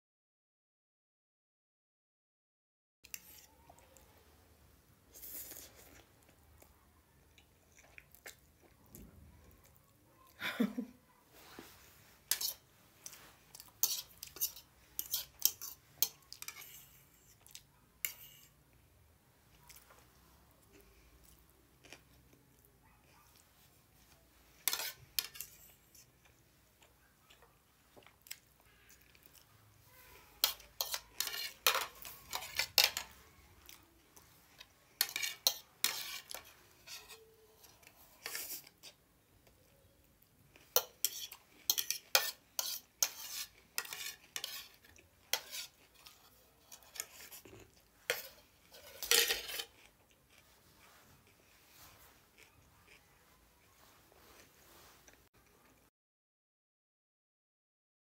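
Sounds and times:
fork clinking on ceramic plate: 0:40.8 - 0:44.7, 0:48.1 - 0:49.8.

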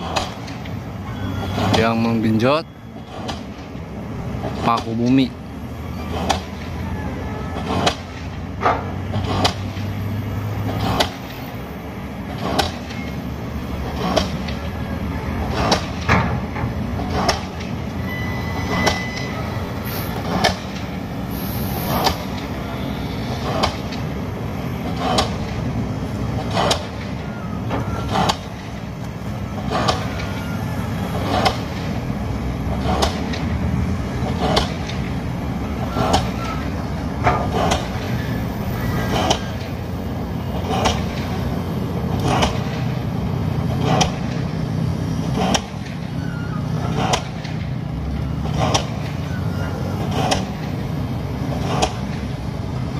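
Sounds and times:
heavy machinery engines rumbling: 0:00.0 - 0:52.9.

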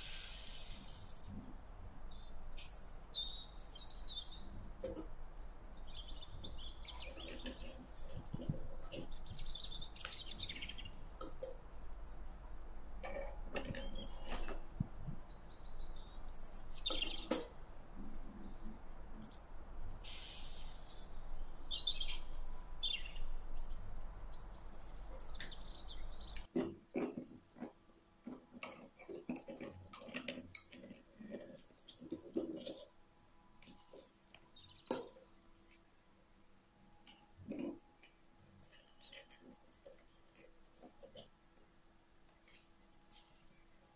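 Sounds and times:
birds chirping: 0:01.2 - 0:05.0, 0:05.8 - 0:11.0, 0:11.9 - 0:17.5, 0:20.9 - 0:26.5.

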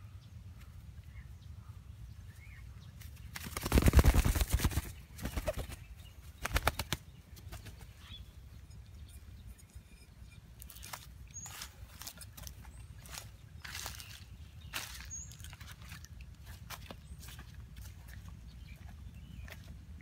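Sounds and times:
dove wingbeats: 0:03.0 - 0:08.0.

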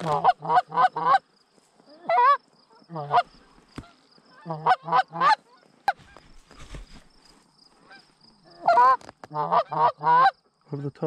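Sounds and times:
geese honking: 0:00.0 - 0:01.3, 0:01.9 - 0:06.2, 0:07.8 - 0:10.4.

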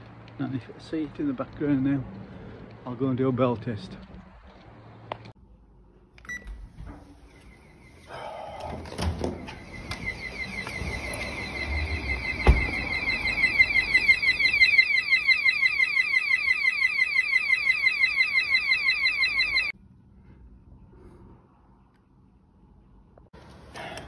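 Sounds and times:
alarm siren warbling: 0:09.4 - 0:19.8.

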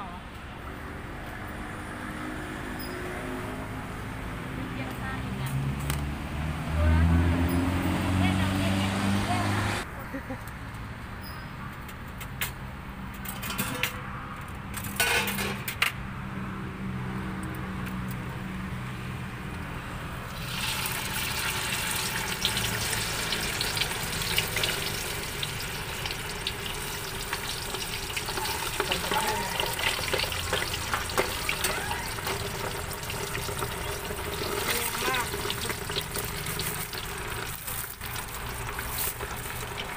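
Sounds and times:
sausage deep-frying in oil: 0:20.3 - 0:39.9.

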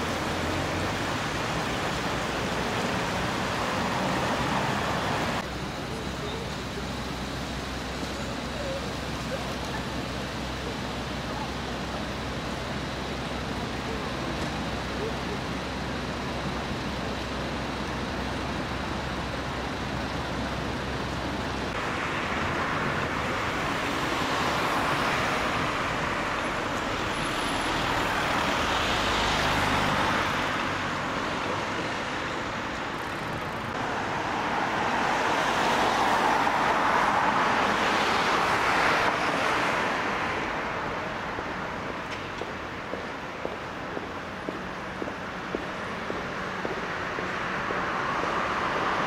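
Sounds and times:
road vehicles passing: 0:00.0 - 0:49.0.

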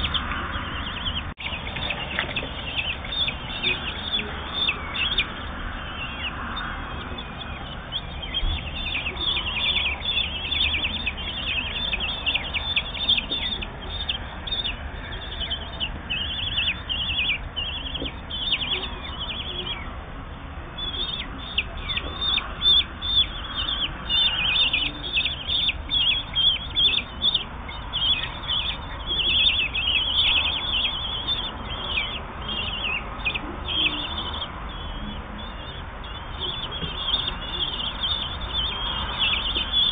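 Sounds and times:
nestlings begging calls: 0:00.0 - 0:39.9.

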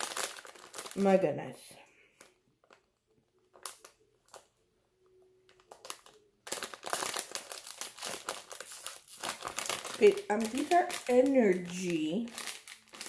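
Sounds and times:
plastic bag tearing: 0:00.0 - 0:01.2, 0:05.5 - 0:13.0
plastic bag crinkling: 0:00.0 - 0:04.5, 0:05.4 - 0:13.0.

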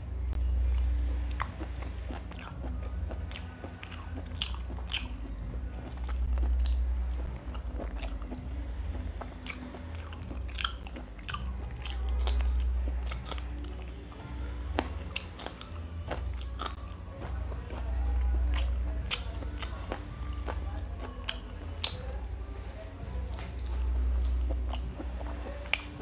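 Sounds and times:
low rumble: 0:00.0 - 0:26.0
chewing food with wet mouth clicks: 0:00.6 - 0:22.5, 0:23.4 - 0:26.0.

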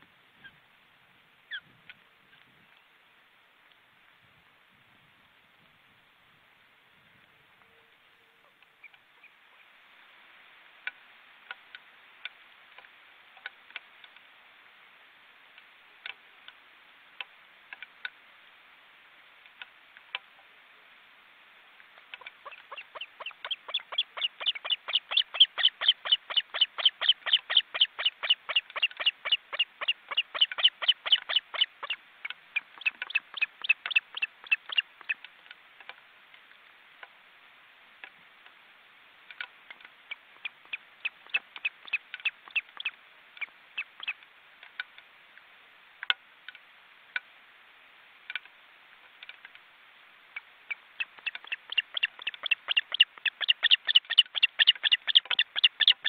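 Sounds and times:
osprey chirping: 0:22.2 - 0:35.2, 0:40.1 - 0:44.2, 0:50.7 - 0:56.0.

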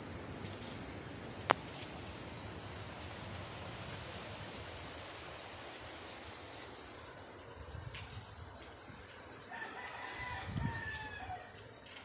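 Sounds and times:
outdoor background hiss: 0:00.0 - 0:12.0.

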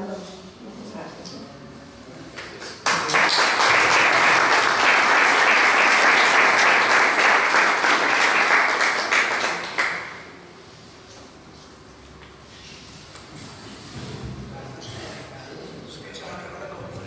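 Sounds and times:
audience applauding: 0:02.5 - 0:10.2.

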